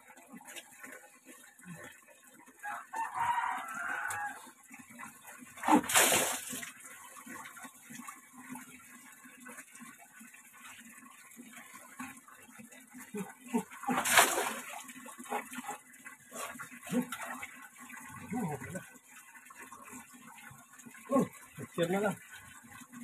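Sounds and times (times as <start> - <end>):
water trickling and dripping: 0.0 - 23.0
water splashing on concrete: 5.6 - 6.7, 13.5 - 15.8.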